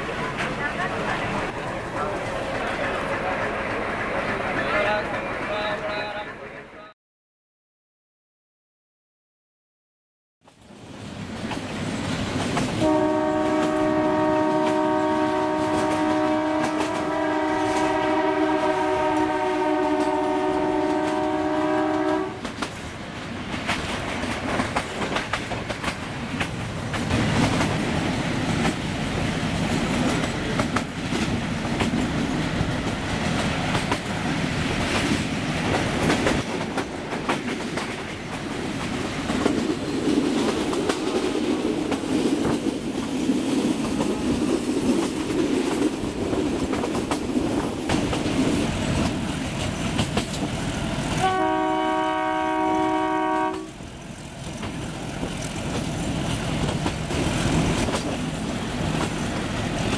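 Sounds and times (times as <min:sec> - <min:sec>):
train running noise: 0:00.0 - 0:06.9, 0:10.5 - 0:59.9
locomotive horn blast: 0:12.8 - 0:22.4, 0:51.2 - 0:53.8
wheels clicking over rail joints: 0:22.4 - 0:51.3, 0:54.4 - 0:59.9.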